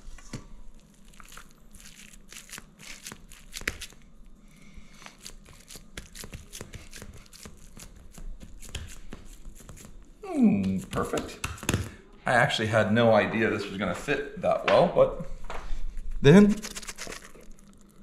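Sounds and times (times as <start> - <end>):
hands packing moist dip: 0.9 - 4.0, 5.0 - 10.0, 10.6 - 12.0, 16.5 - 17.5.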